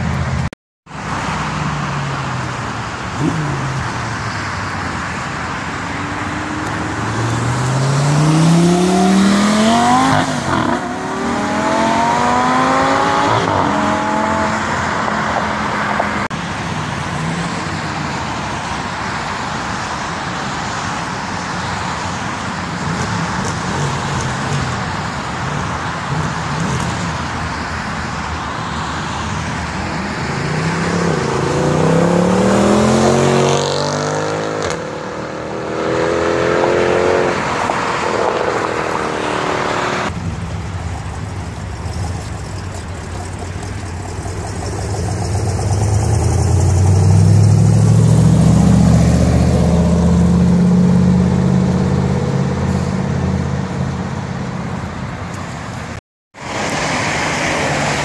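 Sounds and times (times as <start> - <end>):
road traffic noise: 0.0 - 58.0
another car accelerating: 1.0 - 16.3, 29.1 - 55.6
sports car engine revving: 5.9 - 16.2.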